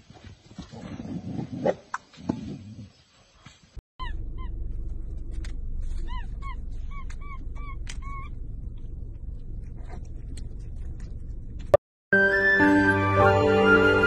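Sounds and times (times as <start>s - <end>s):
monkey squeaky chirps: 4.0s - 4.6s, 5.9s - 8.4s
low hum: 4.0s - 11.8s.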